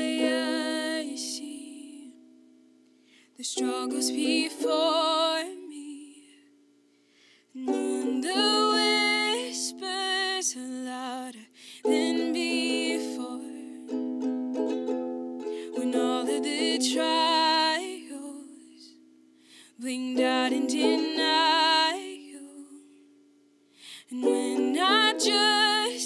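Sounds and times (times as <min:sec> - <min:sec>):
woman singing: 0:00.0 - 0:02.2, 0:03.4 - 0:06.5, 0:07.5 - 0:13.8, 0:15.6 - 0:19.0, 0:19.6 - 0:23.0, 0:23.9 - 0:26.0
ukulele chords: 0:00.0 - 0:02.4, 0:03.6 - 0:06.0, 0:07.6 - 0:10.4, 0:11.8 - 0:18.5, 0:20.0 - 0:22.4, 0:24.1 - 0:26.0.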